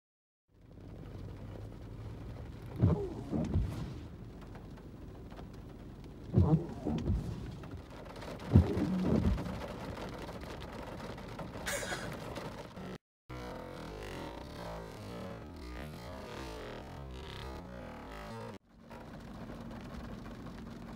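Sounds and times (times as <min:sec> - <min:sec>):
rain hissing on car: 0:00.6 - 0:13.0, 0:18.0 - 0:20.9
windshield wipers rubbing on glass: 0:02.6 - 0:04.2, 0:06.2 - 0:12.7.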